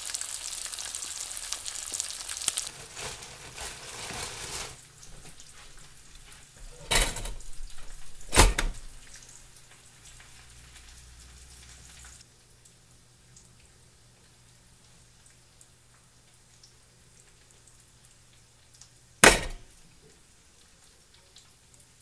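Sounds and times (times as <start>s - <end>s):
eggs sizzling in a frying pan: 0.0s - 22.0s
toaster clacks: 6.7s - 9.0s, 19.2s - 19.8s.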